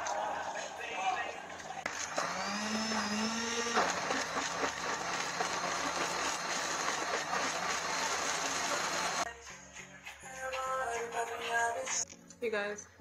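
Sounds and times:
blender blades churning: 1.5 - 9.3
blender motor whining: 1.6 - 9.3.

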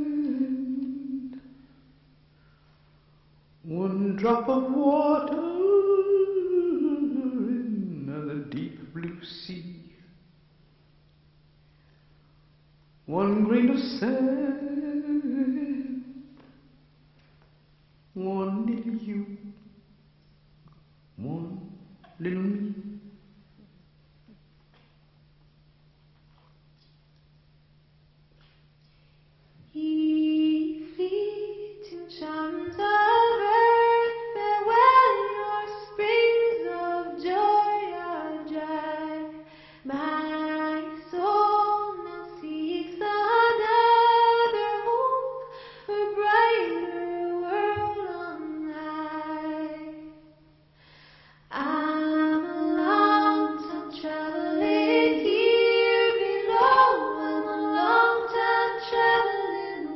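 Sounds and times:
woman singing wordless melody: 0.0 - 1.6, 3.6 - 10.0, 13.0 - 16.4, 18.1 - 19.8, 21.2 - 23.2, 29.6 - 50.6, 51.5 - 59.9
steady low hum: 0.0 - 59.9.

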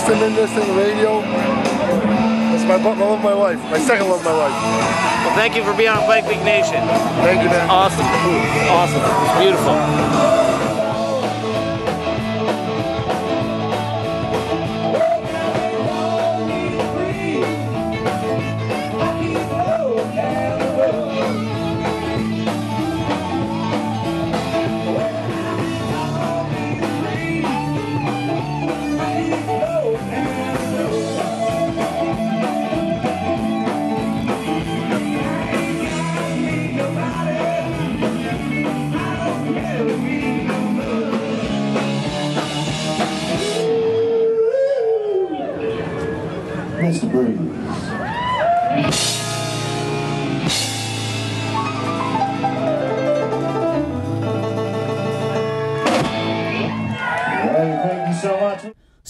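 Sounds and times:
rock music with singing: 0.0 - 59.0.

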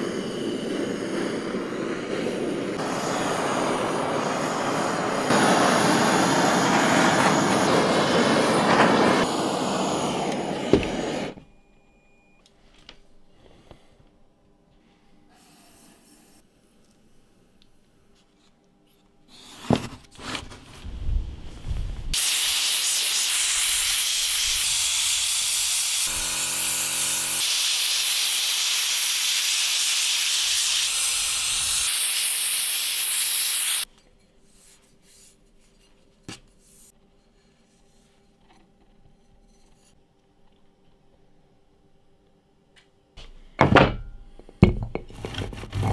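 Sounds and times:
sandblasting gun hissing: 0.0 - 11.4, 22.2 - 33.9.

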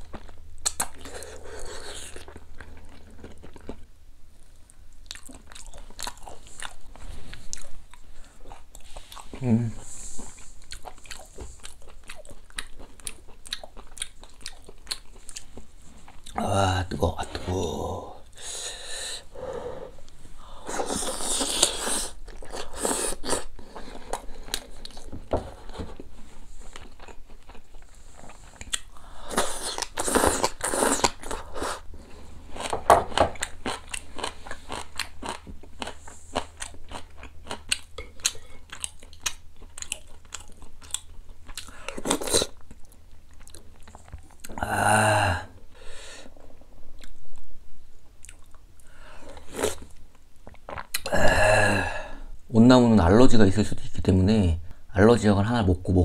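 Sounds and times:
close chewing and mouth smacks: 0.0 - 9.4, 10.2 - 16.4, 20.7 - 44.6, 46.9 - 51.1.

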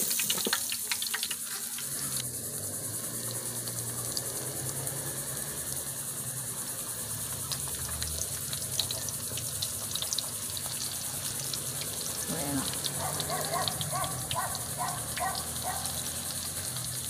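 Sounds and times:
oil crackling pops: 0.0 - 2.3, 7.4 - 14.5
shrimp sizzling in hot oil: 0.0 - 17.0.

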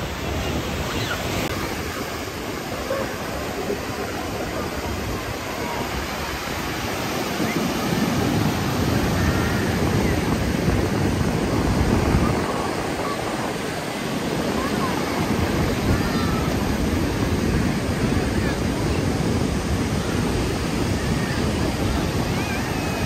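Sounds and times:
ocean surf breaking: 0.0 - 23.0.

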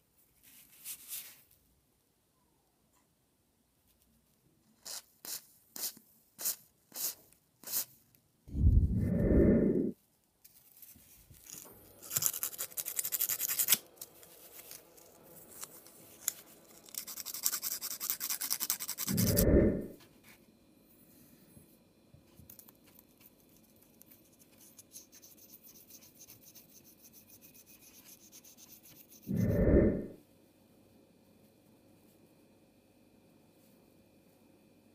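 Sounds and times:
hands scratching and rubbing rubber: 10.5 - 19.4.

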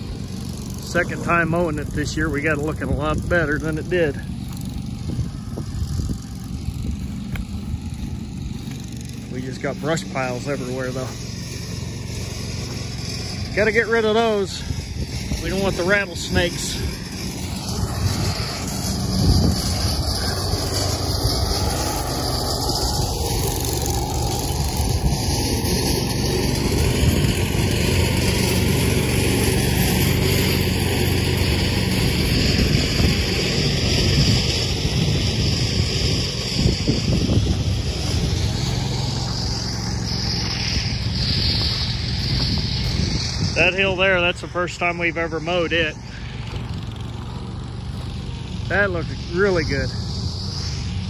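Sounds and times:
small vehicle engine running: 0.0 - 51.0
wind noise on microphone: 1.0 - 9.0, 14.0 - 28.1, 31.9 - 44.4.

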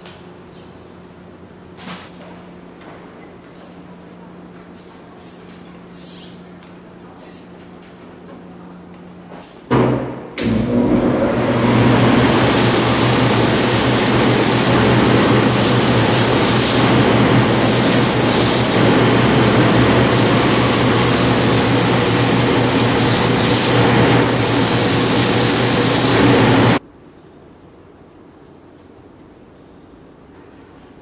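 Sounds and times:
machine humming: 9.7 - 26.8
sanding wheel grinding rubber: 11.6 - 26.8.

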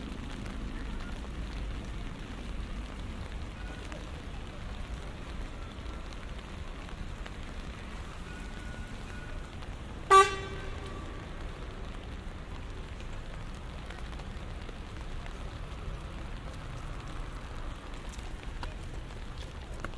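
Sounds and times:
rain on a street: 0.0 - 19.9
car horn: 10.1 - 11.2.

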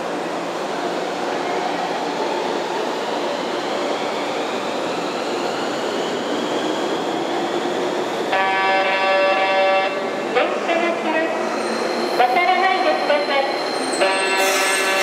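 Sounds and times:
tram rumbling over rails: 4.4 - 15.0.

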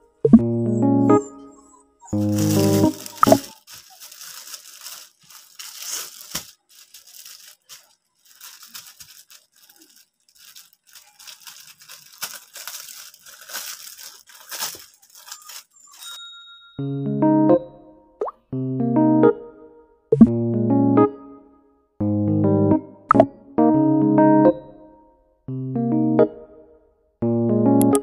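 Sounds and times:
plastic bag crinkling: 1.1 - 16.2.

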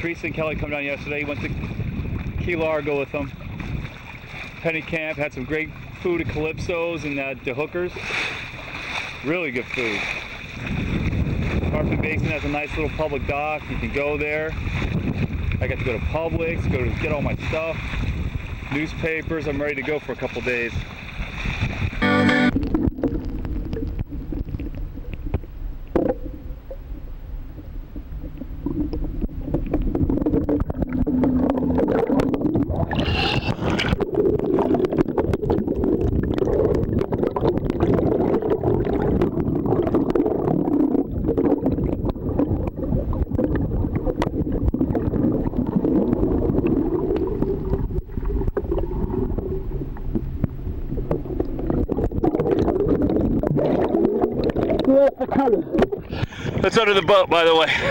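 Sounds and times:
muffled underwater water rumble: 0.0 - 57.9
small underwater clicks: 22.5 - 27.1, 28.0 - 56.4.

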